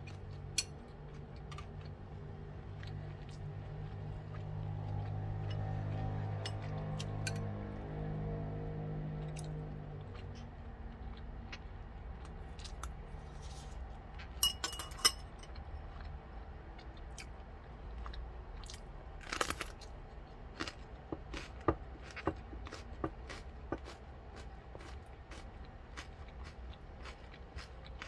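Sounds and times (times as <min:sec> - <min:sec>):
chewing and eating noises: 0:00.0 - 0:28.0
spoon and chopsticks clinking bowl: 0:14.4 - 0:15.6.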